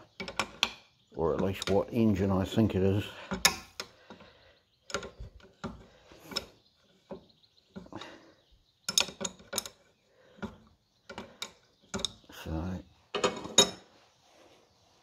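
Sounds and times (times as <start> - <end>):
hand tools clinking on metal: 0.0 - 1.9.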